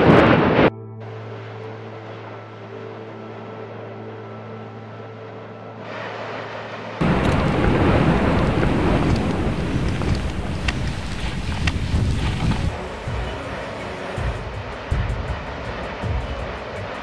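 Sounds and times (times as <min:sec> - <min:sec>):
wind on microphone: 0:00.0 - 0:00.7, 0:07.0 - 0:13.4
low hum: 0:00.0 - 0:13.4
loud rushing rumble: 0:05.9 - 0:16.9.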